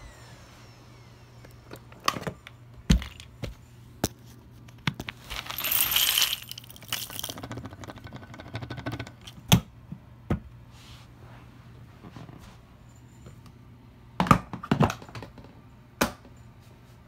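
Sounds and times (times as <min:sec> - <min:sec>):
plastic debris clattering: 0:05.2 - 0:07.8.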